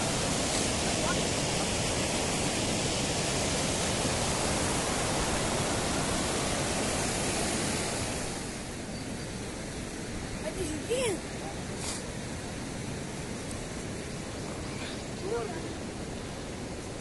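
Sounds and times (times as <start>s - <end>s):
fast-flowing stream water: 0.0s - 8.8s.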